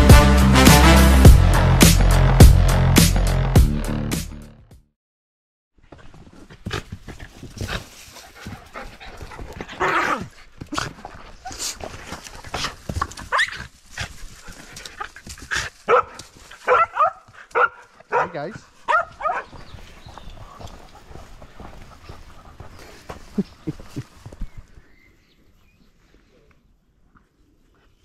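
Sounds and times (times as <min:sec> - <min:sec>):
dogs panting: 0:06.8 - 0:13.2, 0:13.9 - 0:24.4.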